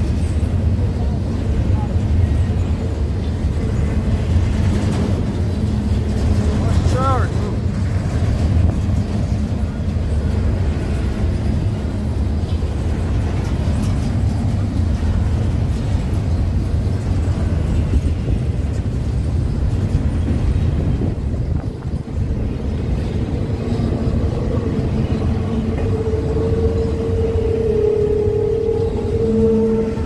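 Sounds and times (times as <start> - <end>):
vehicle rumbling in motion: 0.0 - 30.0.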